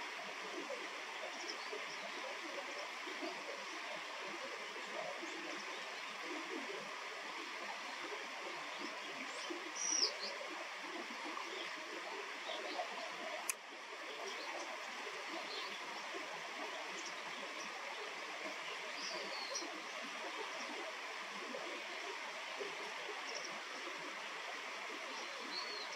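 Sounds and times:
flowing river water: 0.0 - 25.9
sharp click: 13.4 - 13.6.

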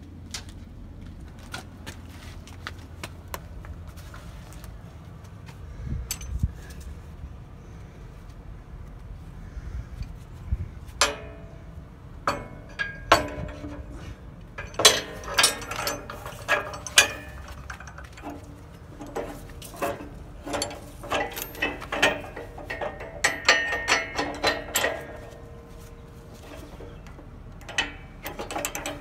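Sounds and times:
metal hardware clinking: 6.0 - 6.4, 11.0 - 29.0.

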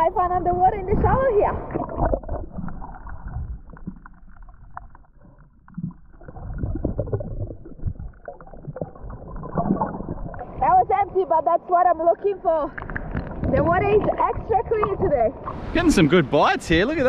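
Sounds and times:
underwater sloshing and gurgling: 0.0 - 16.3
small underwater clicks and crackles: 0.8 - 15.6.

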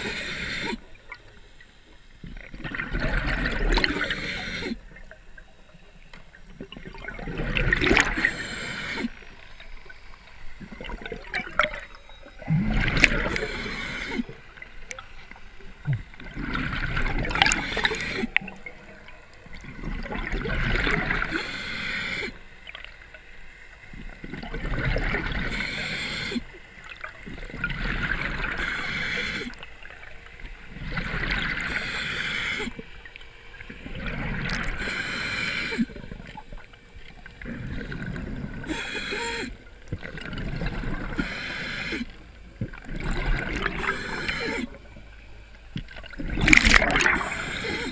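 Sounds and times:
regulator hiss: 0.0 - 1.0, 3.8 - 5.0, 8.1 - 9.4, 13.2 - 14.6, 17.3 - 18.6, 21.1 - 22.5, 25.4 - 26.6, 28.5 - 29.7, 31.6 - 32.9, 34.7 - 36.1, 38.6 - 39.7, 41.2 - 42.3, 43.8 - 44.8
gurgling exhaled bubbles: 2.2 - 5.2, 6.5 - 9.2, 10.6 - 15.0, 15.7 - 21.5, 23.9 - 29.6, 30.6 - 31.8, 33.6 - 34.9, 37.2 - 38.8, 39.4 - 44.9, 45.8 - 47.9.

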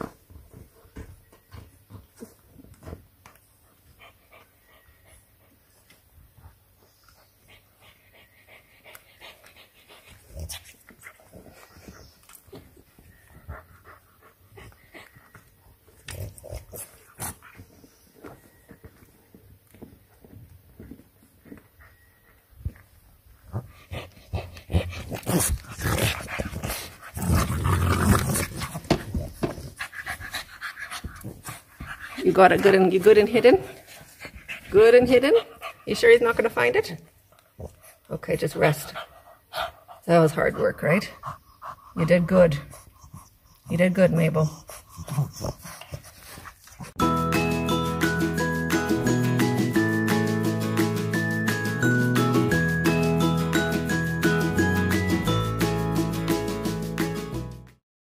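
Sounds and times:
puppies panting: 0.0 - 18.4, 21.4 - 47.0.

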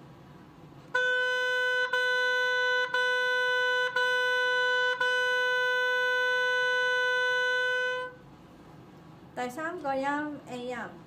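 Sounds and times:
oboe tongued notes: 1.0 - 8.2.

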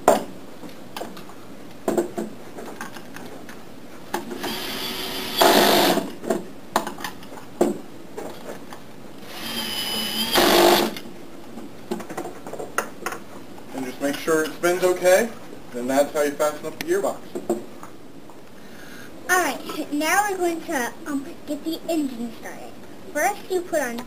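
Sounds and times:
power screwdriver driving bolts: 9.3 - 11.0.

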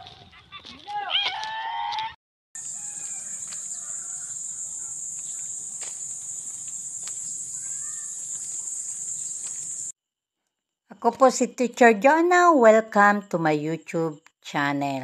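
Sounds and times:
high-pitched insect chorus: 2.6 - 9.9.

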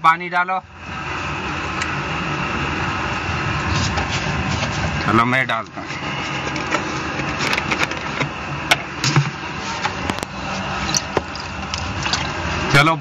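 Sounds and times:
water rushing through pipe nozzle: 10.4 - 12.8.

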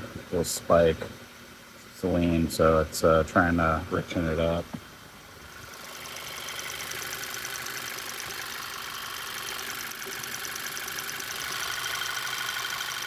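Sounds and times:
car engine idling: 0.0 - 13.0
fast high ticking: 5.6 - 13.0.

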